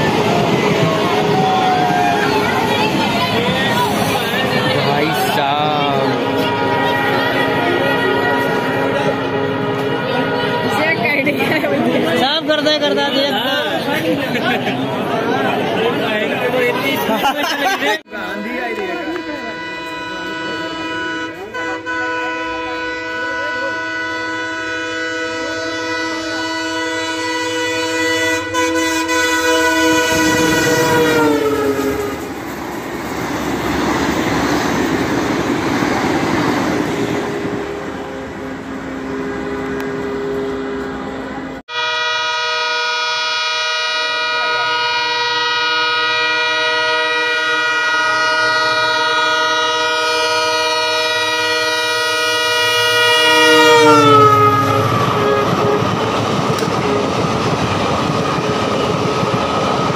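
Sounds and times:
train coaches rushing and rattling: 0.0 - 41.6, 44.2 - 59.9
locomotive horn: 0.8 - 11.5, 18.1 - 32.4, 37.3 - 57.2.

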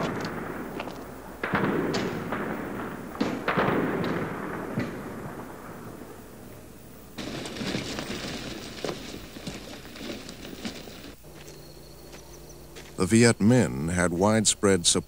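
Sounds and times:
gunfire: 0.0 - 5.8
explosions: 1.4 - 6.2.

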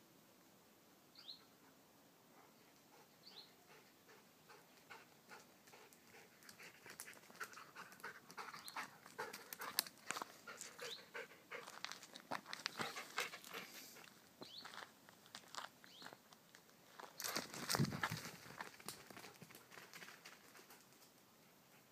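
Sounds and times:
dog panting: 2.4 - 12.1, 12.8 - 14.2.

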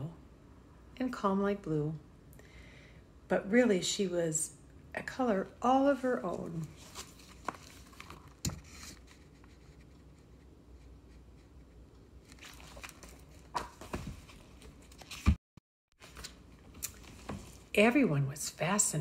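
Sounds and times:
book pages rustling: 6.2 - 15.4, 16.0 - 17.7.

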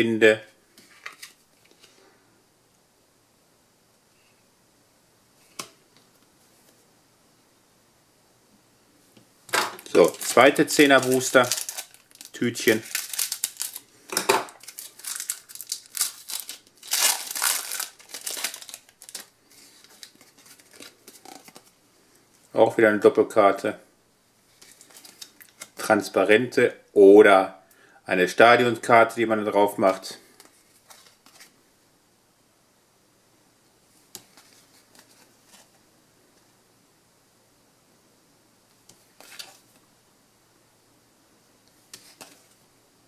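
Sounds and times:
foil pack crinkling: 9.8 - 21.7, 24.6 - 25.8.

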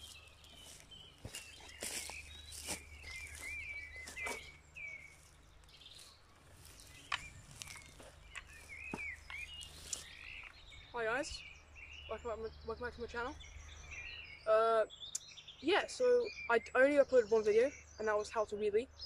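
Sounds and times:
footsteps on dry leaves: 0.0 - 10.8
small birds chirping: 0.0 - 19.0.

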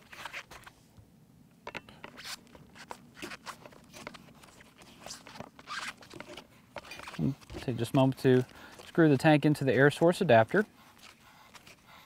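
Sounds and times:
threads scraping: 2.0 - 12.0.

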